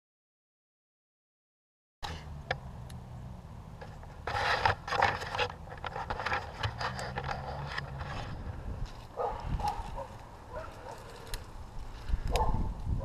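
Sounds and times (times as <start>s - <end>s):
camera handling scrapes and rustles: 3.8s - 12.4s.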